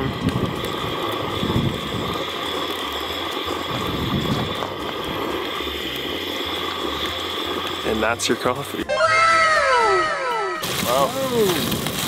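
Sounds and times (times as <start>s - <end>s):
wind noise on microphone: 0.0s - 2.3s, 3.6s - 5.3s, 10.6s - 12.0s.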